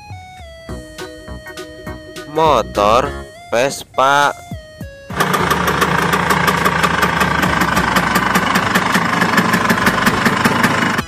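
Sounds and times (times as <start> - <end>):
scooter engine idling: 4.6 - 11.0.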